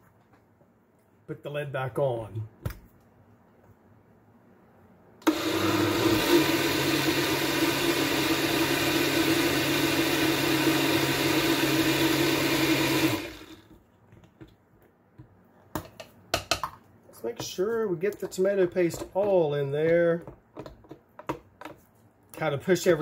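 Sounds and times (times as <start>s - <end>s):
blender motor running: 5.2s - 13.7s.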